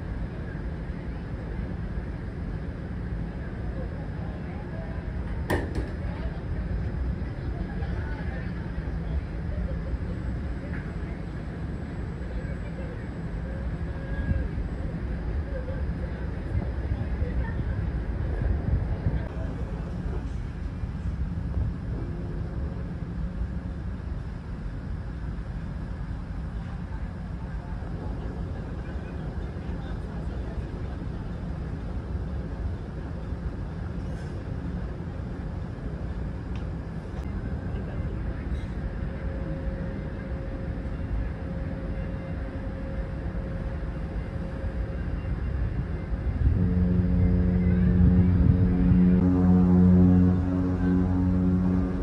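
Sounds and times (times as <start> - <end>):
ship low rumble: 0.0 - 52.0
low rumble: 31.5 - 52.0
ship's horn blast: 38.8 - 52.0
air moving over microphone: 43.6 - 49.8.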